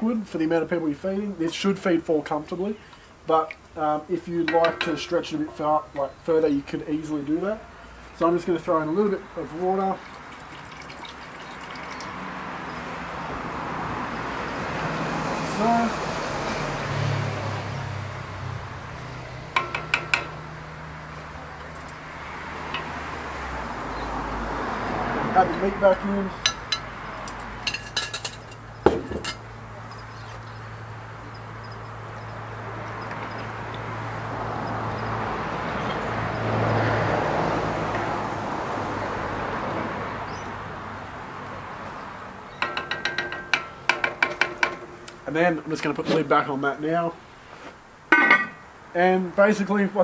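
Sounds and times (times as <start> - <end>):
metal cookware clinking: 4.4 - 5.5, 19.6 - 20.6, 22.7 - 23.1, 26.4 - 30.4, 42.6 - 45.0, 48.1 - 48.6
spoon tapping metal pot: 4.5 - 5.1, 19.6 - 20.4, 22.7 - 23.0, 42.6 - 45.0.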